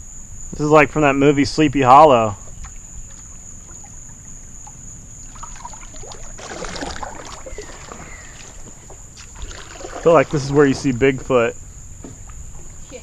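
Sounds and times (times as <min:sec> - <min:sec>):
paddle splashes in water: 0:02.4 - 0:11.2.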